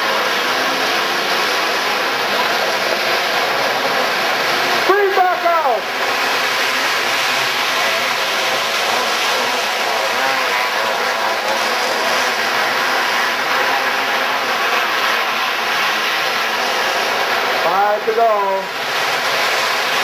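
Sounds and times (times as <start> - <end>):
kart engines racing: 0.0 - 20.0.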